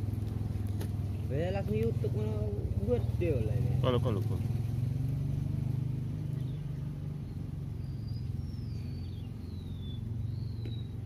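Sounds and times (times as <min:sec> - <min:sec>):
engine humming: 0:00.0 - 0:11.0
bird whistling high notes: 0:07.8 - 0:11.0.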